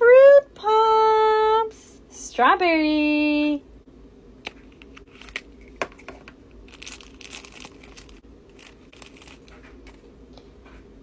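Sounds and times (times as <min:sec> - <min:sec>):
plastic wrapper crinkling and tearing: 0:04.8 - 0:10.0.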